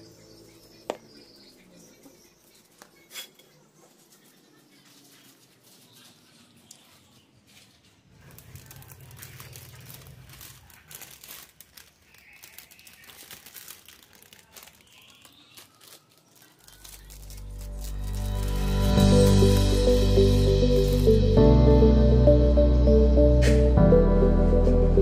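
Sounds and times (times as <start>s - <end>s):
plastic bag crinkling: 7.1s - 21.1s
music: 16.8s - 25.0s.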